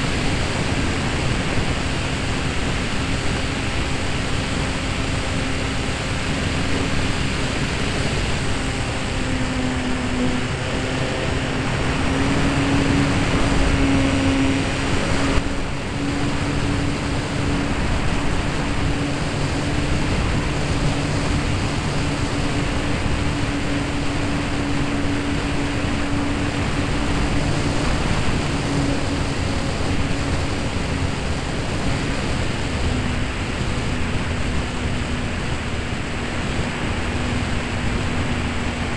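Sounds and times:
electric motor and propeller hum: 0:00.0 - 0:38.9
wind rush on microphone: 0:00.0 - 0:38.9.

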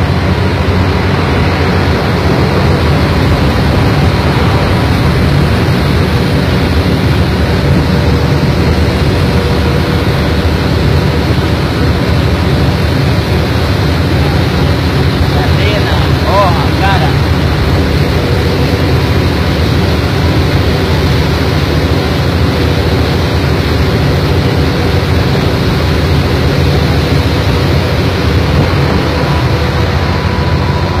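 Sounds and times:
faint steady whine: 0:00.0 - 0:31.0
heavy low engine rumble: 0:00.0 - 0:31.0.

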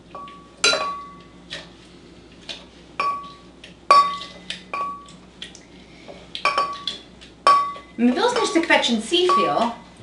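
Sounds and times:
glass ringing: 0:00.2 - 0:01.2, 0:03.0 - 0:03.3, 0:03.9 - 0:05.1.

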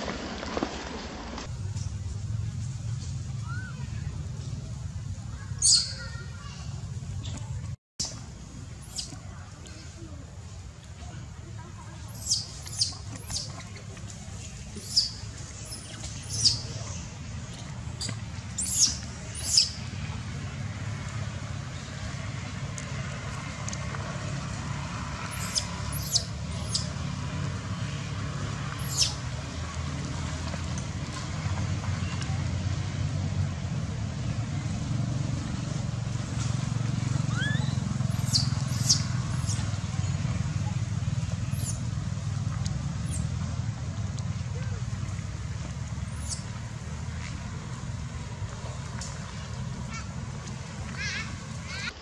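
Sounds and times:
low steady rumble: 0:00.0 - 0:52.0
infant monkey squealing: 0:05.6 - 0:06.0, 0:25.3 - 0:26.9, 0:28.8 - 0:29.2, 0:37.3 - 0:39.6.

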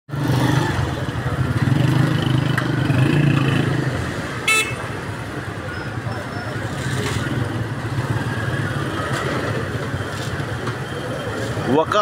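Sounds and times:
motorcycle engines running: 0:00.1 - 0:12.0
horn toot: 0:04.4 - 0:05.0.

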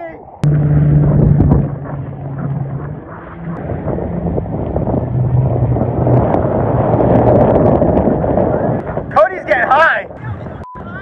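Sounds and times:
water rushing: 0:00.0 - 0:10.2
wind: 0:00.0 - 0:11.0
jet ski engine droning: 0:00.3 - 0:09.0.

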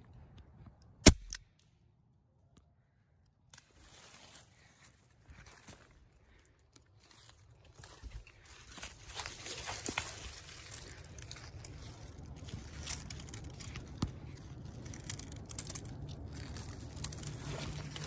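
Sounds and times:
crunching in dry leaves: 0:03.6 - 0:18.0
low rumble: 0:09.9 - 0:18.0.

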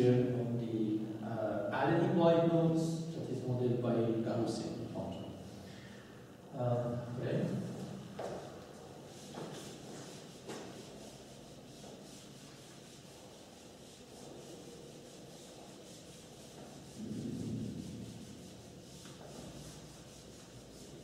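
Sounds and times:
eraser wiping whiteboard: 0:07.6 - 0:21.0.

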